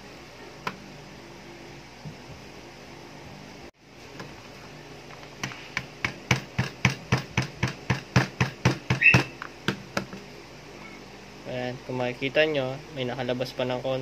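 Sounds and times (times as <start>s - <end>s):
hammer tapping on plastic: 5.4s - 10.2s.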